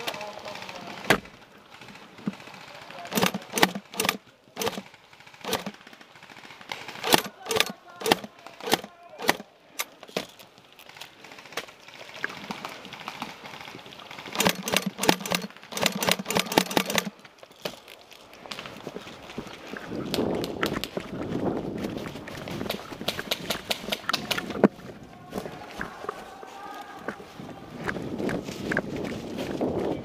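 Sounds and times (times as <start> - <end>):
airsoft rifle shots: 0.0 - 9.9, 14.3 - 17.2.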